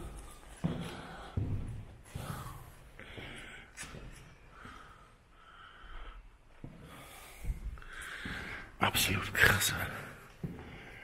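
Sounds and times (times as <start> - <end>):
footsteps on gritty concrete: 0.0 - 2.3
quiet breaths: 0.0 - 11.0.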